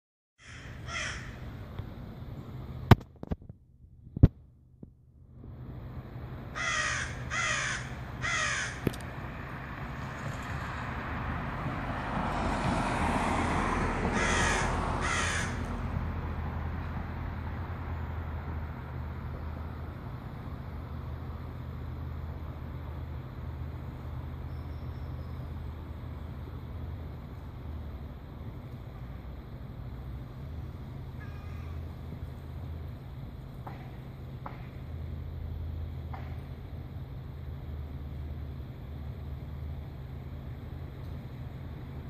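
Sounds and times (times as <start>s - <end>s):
bird harsh calls: 0.4s - 1.5s, 6.6s - 8.8s, 14.2s - 15.6s, 31.2s - 31.8s.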